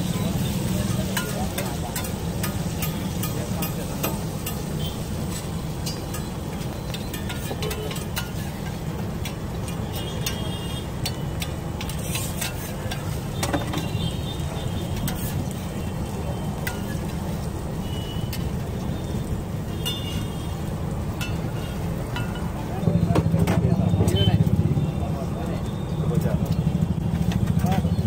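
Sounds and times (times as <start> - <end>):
butter sizzling: 0.0 - 22.8
metal spatula scraping griddle: 1.1 - 14.0, 14.8 - 15.8, 16.6 - 17.4.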